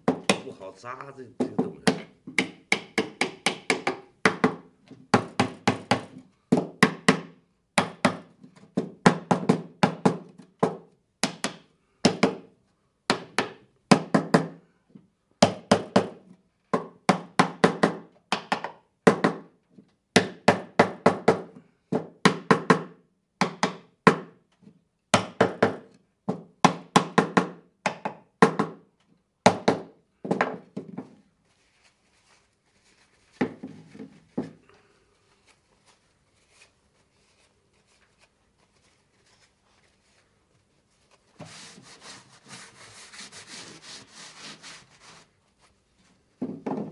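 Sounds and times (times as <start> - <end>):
hammer tapping wooden frame: 1.4 - 12.4.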